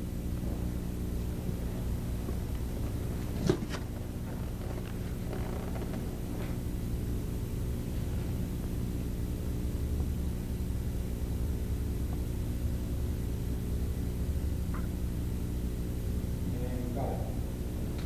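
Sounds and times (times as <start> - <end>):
low electrical hum: 0.0 - 18.0
faint movement noises: 1.5 - 6.8.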